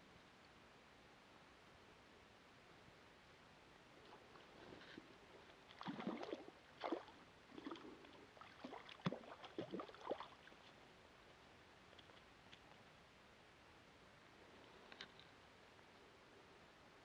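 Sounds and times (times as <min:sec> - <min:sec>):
water splashing at lake edge: 0:05.4 - 0:10.9.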